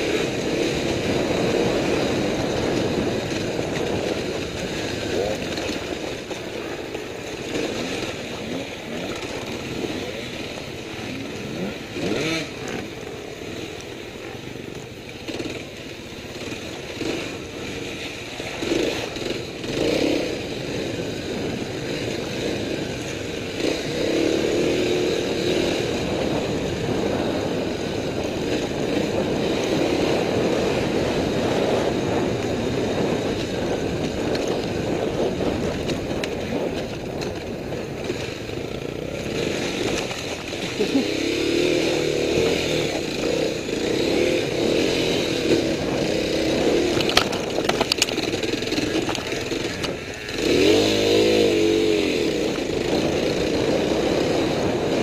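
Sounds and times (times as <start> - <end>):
motorcycle engine revving: 0.0 - 55.0
knocks and clatter: 46.9 - 50.1.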